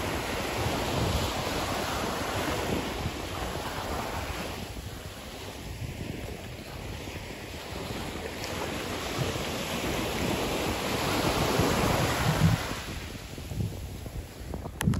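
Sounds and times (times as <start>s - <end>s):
sea waves washing ashore: 0.0s - 14.9s
wind buffeting microphone: 0.0s - 14.9s.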